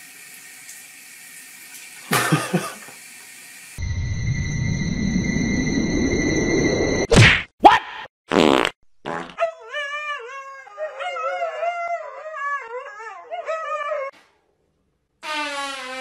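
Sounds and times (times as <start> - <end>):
husky howling: 9.5 - 14.1.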